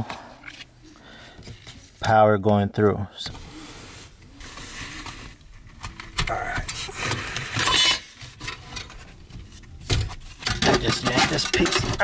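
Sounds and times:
metal light housing clattering: 10.4s - 12.0s.

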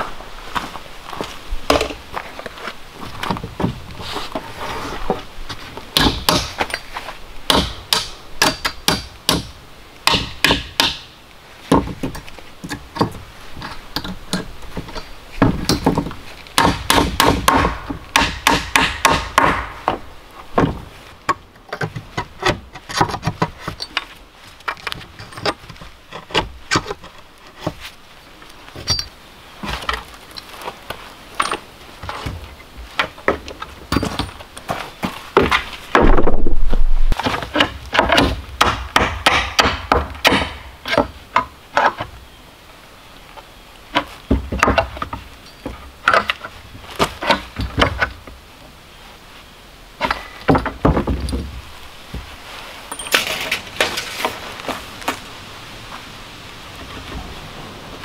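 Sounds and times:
hammer blows on wooden boards: 6.0s - 6.7s, 7.5s - 11.1s, 14.0s - 20.0s, 37.2s - 42.0s.

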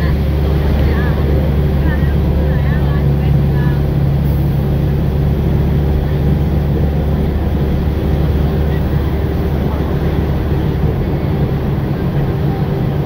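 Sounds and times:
vehicle engine and road rumble: 0.0s - 13.0s.

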